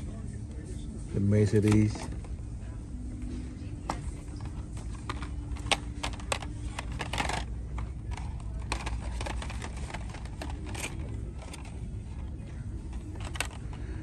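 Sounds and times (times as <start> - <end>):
low background hum: 0.0 - 14.0
plastic cards clicking and clattering: 1.4 - 2.4, 3.8 - 14.0.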